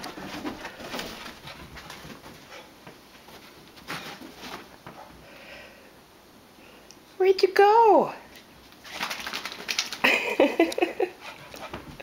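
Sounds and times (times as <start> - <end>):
dog scuffling and running on carpet: 0.0 - 5.2, 11.2 - 12.0.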